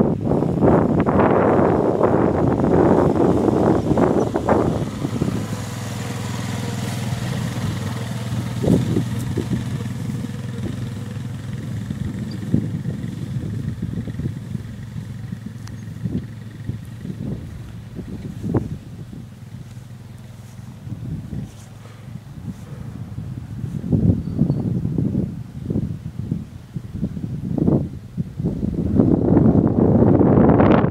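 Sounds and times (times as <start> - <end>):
quad bike engine running: 0.0 - 30.9
wind rumbling on microphone: 0.0 - 30.9.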